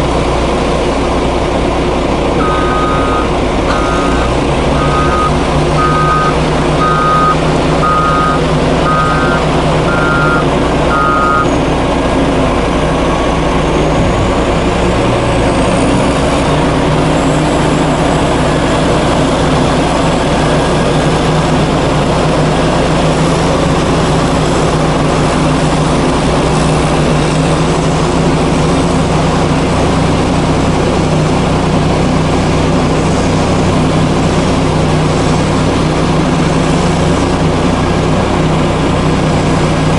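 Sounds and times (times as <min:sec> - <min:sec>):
heavy diesel engines running: 0:00.0 - 0:39.9
reversing alarm beeping: 0:02.4 - 0:11.6.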